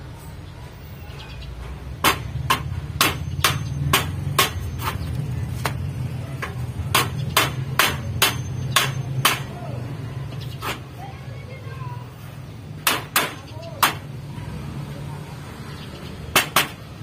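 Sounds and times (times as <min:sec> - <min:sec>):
sharp knocks: 0:02.0 - 0:05.0, 0:06.4 - 0:09.5, 0:12.8 - 0:14.1, 0:16.3 - 0:16.9.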